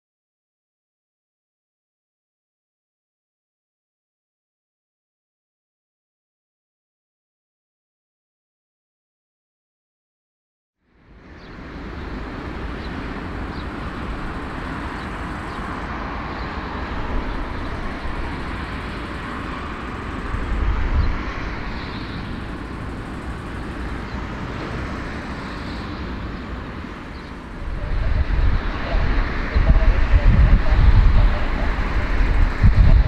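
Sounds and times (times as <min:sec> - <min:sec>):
faint high whine: 0:10.8 - 0:33.0
jet engines running: 0:10.9 - 0:33.0
wind on microphone: 0:11.3 - 0:33.0.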